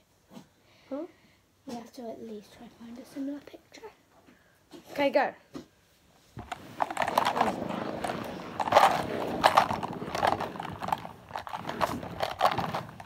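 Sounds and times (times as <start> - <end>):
pens rattling in plastic holder: 6.4 - 13.0.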